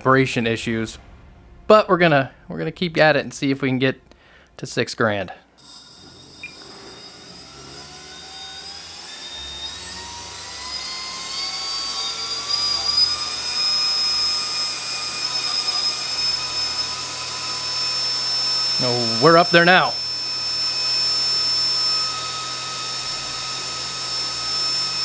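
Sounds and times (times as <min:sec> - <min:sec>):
fan motor whine with rushing air: 0:05.6 - 0:25.0.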